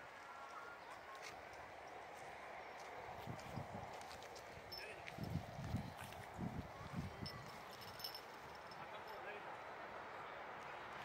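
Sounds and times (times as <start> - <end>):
footsteps on dirt path: 0.9 - 8.6.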